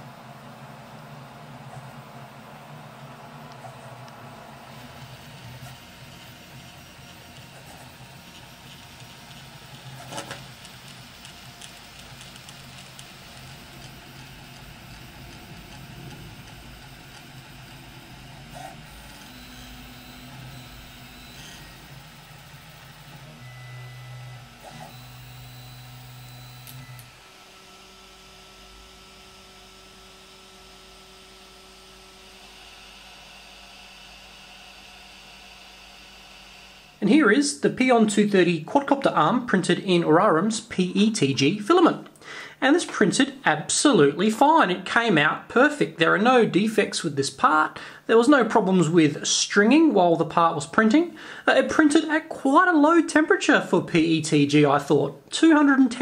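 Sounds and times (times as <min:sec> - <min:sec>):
printer stepper motors whining: 0:00.0 - 0:41.6
steady hum: 0:00.0 - 0:54.2.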